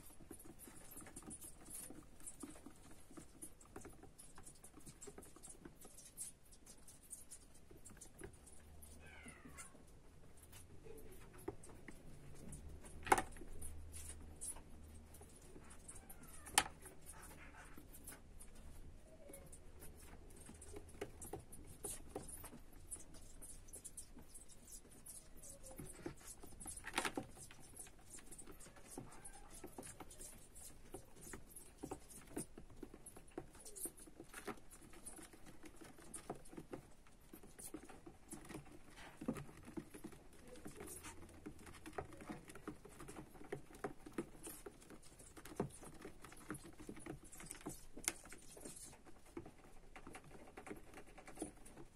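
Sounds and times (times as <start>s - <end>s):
faint falling squeaks: 13.5s - 20.8s, 21.9s - 32.4s
hamster claws scratching plastic: 19.2s - 51.9s.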